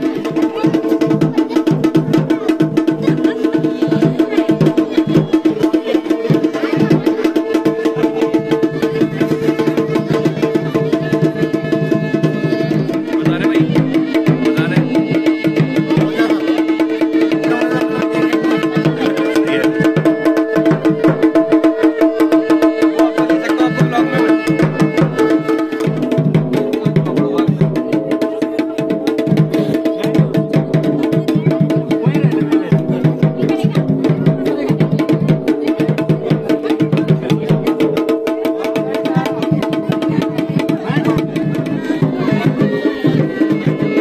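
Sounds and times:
fast dense drumming: 0.0 - 44.0.

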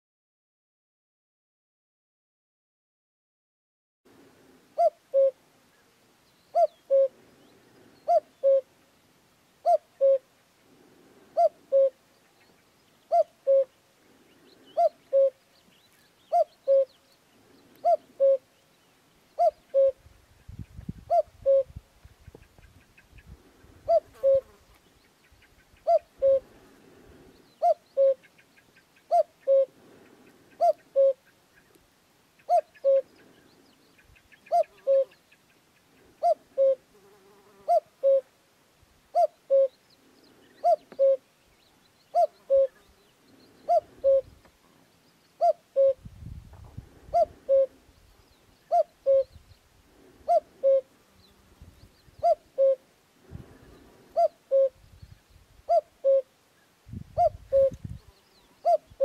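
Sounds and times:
cuckoo calling: 4.8 - 5.9, 6.5 - 7.2, 8.0 - 8.7, 9.6 - 10.3, 11.4 - 13.8, 14.7 - 17.1, 17.8 - 18.6, 19.4 - 20.0, 21.1 - 24.6, 25.3 - 26.5, 27.6 - 31.8, 32.4 - 33.3, 34.0 - 35.3, 36.2 - 36.9, 37.7 - 38.3, 39.1 - 39.8, 40.5 - 41.3, 42.1 - 42.9, 43.5 - 44.5, 45.4 - 46.1, 47.1 - 47.8, 48.6 - 49.5, 50.2 - 50.9, 52.0 - 52.9, 54.1 - 54.8, 55.7 - 56.3, 57.2 - 59.0.

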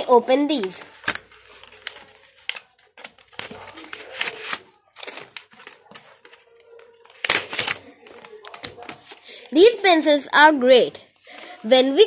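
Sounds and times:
plastic wrapping crinkling: 0.4 - 9.5.

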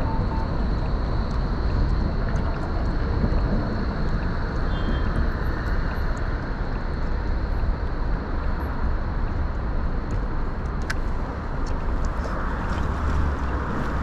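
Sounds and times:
wind rushing over microphone: 0.0 - 14.0
passing road traffic: 10.7 - 14.0.

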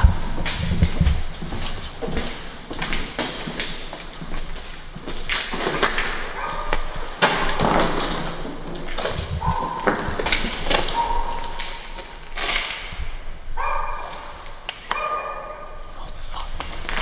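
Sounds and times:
dogs barking and howling: 9.2 - 12.1, 13.6 - 14.3, 14.9 - 15.8.

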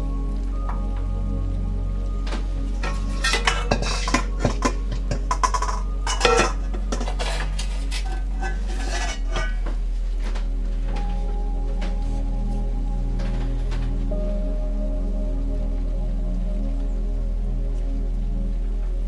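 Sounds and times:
low hum: 0.0 - 19.0
metal bowls and pots clinking: 2.7 - 9.8.

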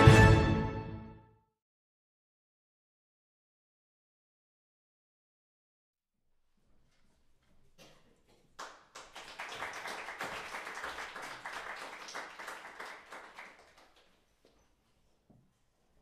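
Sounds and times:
audience applauding: 8.5 - 14.2.

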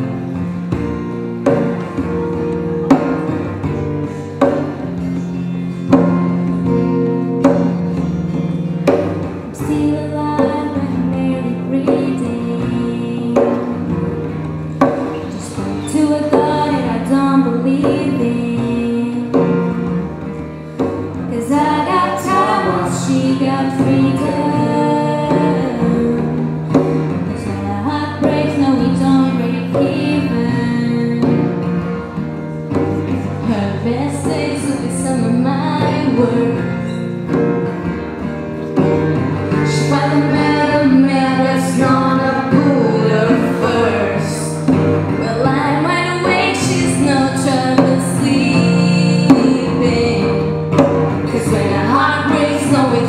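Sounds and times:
hand drumming on djembe: 0.0 - 53.0
strummed acoustic guitar: 0.0 - 53.0
woman singing pop song: 9.4 - 32.2, 33.2 - 37.3, 39.5 - 53.0.

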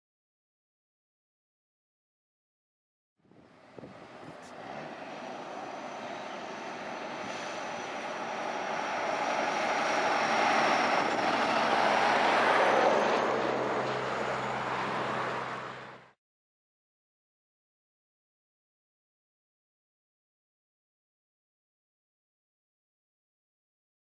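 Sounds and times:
truck engine and tyre noise: 3.2 - 16.2
car passing: 3.3 - 16.2.

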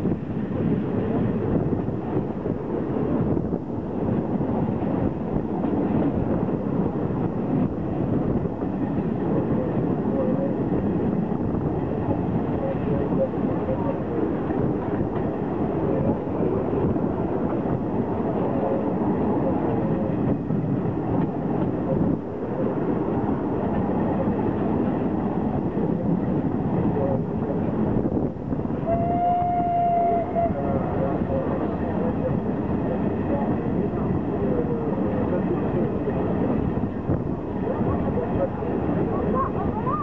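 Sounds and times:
train wheels rumbling on rails: 0.0 - 40.0
wind on microphone: 0.0 - 40.0.

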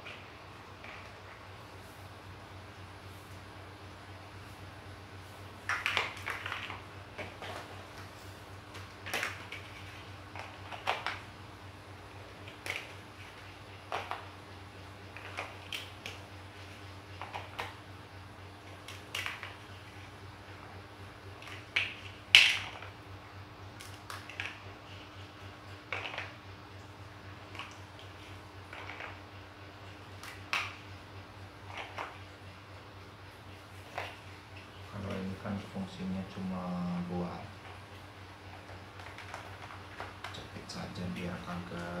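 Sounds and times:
faint steady hum: 0.0 - 42.0
plastic building blocks clicking: 25.9 - 26.4.

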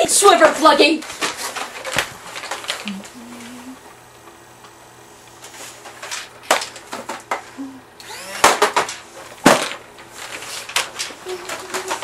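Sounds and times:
toy blasters clacking: 8.1 - 9.7.

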